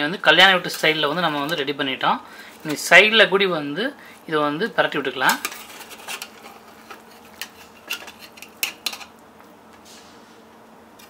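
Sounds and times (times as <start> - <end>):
spoon scraping in pressure cooker: 0.4 - 1.7, 5.3 - 9.0.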